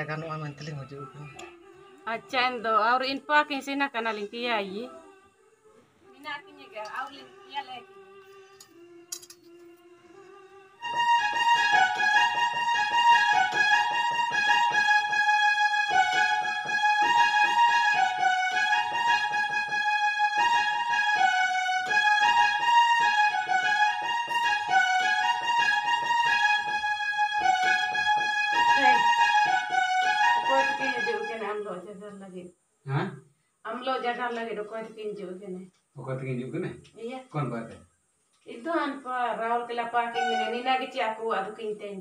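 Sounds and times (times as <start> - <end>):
electronic keyboard melody: 0.0 - 2.6, 10.5 - 31.6, 40.2 - 40.7.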